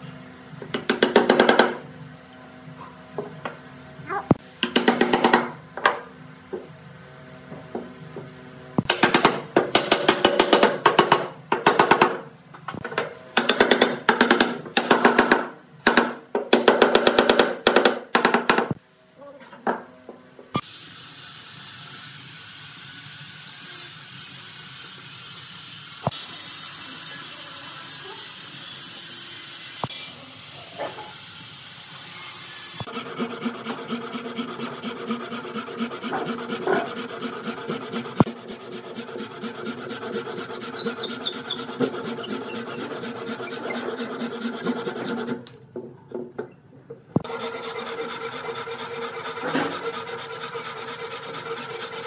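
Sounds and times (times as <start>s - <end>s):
hand saw cutting wood: 32.0s - 45.6s, 47.2s - 52.0s.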